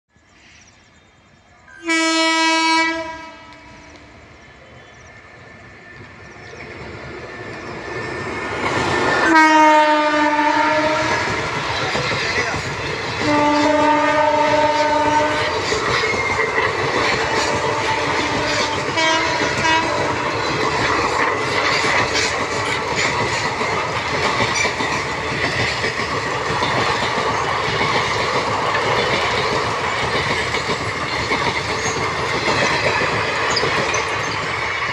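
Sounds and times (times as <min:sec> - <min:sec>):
train rushing past: 0:00.3 - 0:34.9
train horn: 0:01.8 - 0:04.0, 0:09.2 - 0:11.3, 0:13.2 - 0:15.6, 0:17.4 - 0:20.4
wheels clattering over rail joints: 0:11.1 - 0:13.6, 0:14.5 - 0:34.9.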